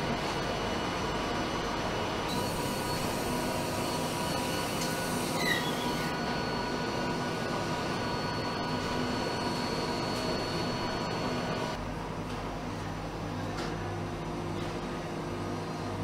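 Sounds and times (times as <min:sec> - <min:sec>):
machinery hums and whines: 0:00.0 - 0:16.0
high squeak: 0:05.3 - 0:06.1.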